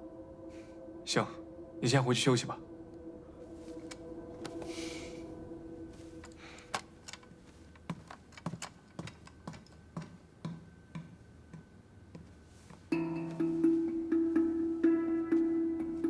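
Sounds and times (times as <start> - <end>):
footsteps on hard floor: 7.6 - 12.9
plucked-string music: 12.9 - 16.0.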